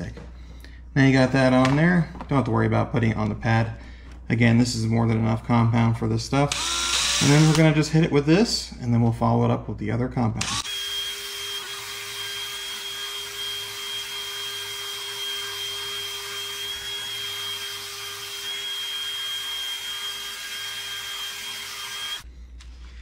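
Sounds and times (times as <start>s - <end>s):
drill motor whine: 6.5s - 7.6s, 10.4s - 22.3s.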